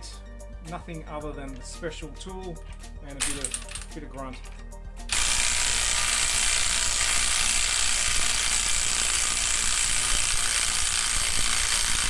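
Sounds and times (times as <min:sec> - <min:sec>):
impact wrench running: 0:05.1 - 0:12.0.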